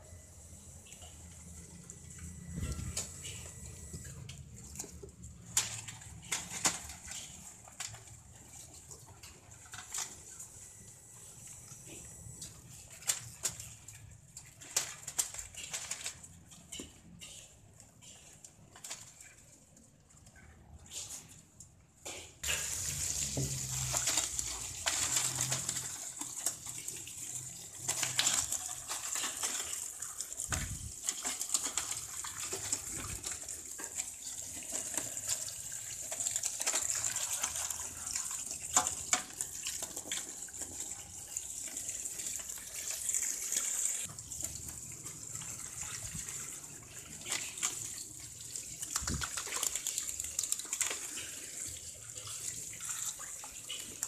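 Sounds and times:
hose water splashing into pot: 21.0s - 54.0s.

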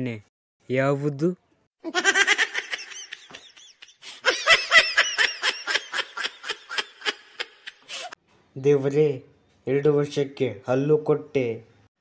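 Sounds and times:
high-pitched laugh: 1.8s - 8.2s.

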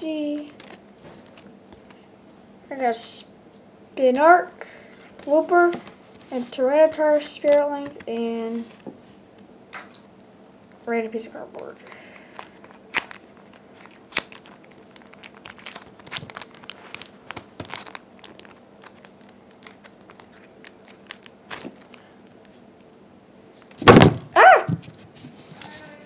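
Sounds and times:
foil wrappers and cards crinkling: 0.0s - 2.0s, 11.8s - 22.5s
loud bumps: 23.8s - 24.9s.

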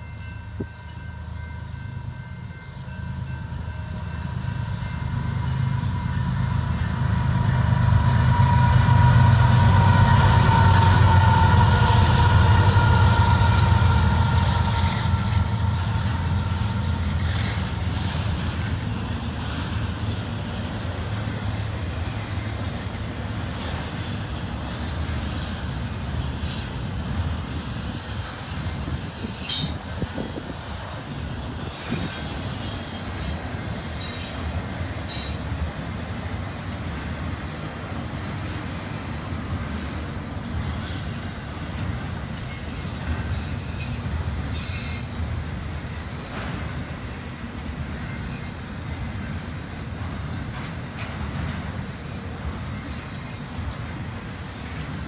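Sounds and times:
train wheels on rails: 0.0s - 55.0s
locomotive engine rumble: 0.5s - 25.6s
wheel squeals: 40.6s - 45.2s.

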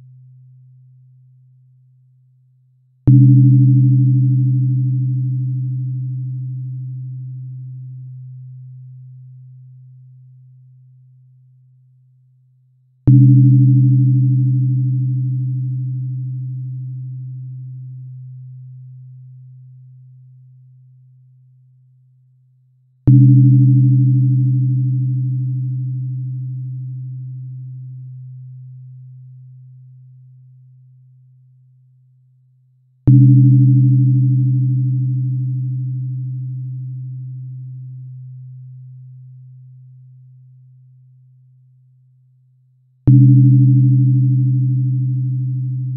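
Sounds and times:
tuning fork ringing: 3.1s - 11.0s, 13.0s - 21.0s, 23.1s - 31.0s, 33.1s - 41.0s, 43.1s - 45.9s.

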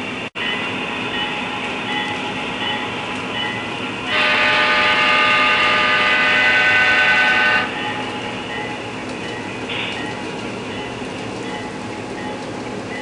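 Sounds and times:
locomotive horn blast: 4.1s - 7.8s.

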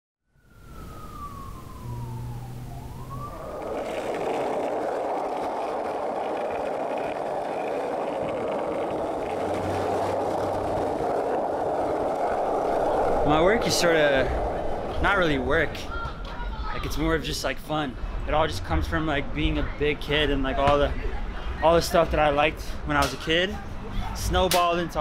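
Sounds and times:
falling siren-like tone: 0.3s - 16.3s
city street traffic roar: 0.6s - 16.8s
skateboard wheels rolling on asphalt: 0.6s - 17.4s.

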